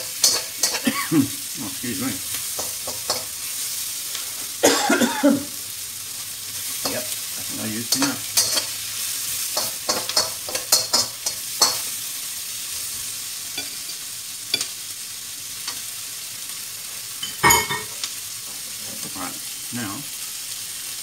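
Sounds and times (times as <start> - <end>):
spatula scraping and clacking on pan: 0.0 - 1.0, 2.3 - 4.6, 6.6 - 12.1, 13.5 - 14.8
onions sizzling in oil: 0.0 - 21.0.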